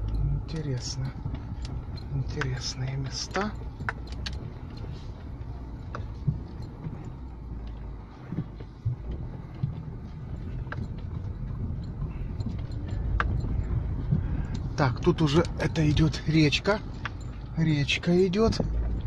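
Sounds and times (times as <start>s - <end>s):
car engine and road rumble: 0.0s - 19.0s
light knocks and rattles: 0.0s - 19.0s.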